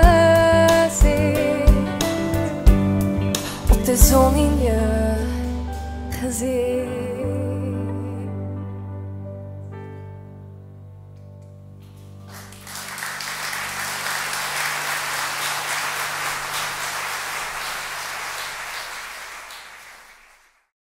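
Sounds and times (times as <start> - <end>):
audience applauding: 12.2 - 20.7.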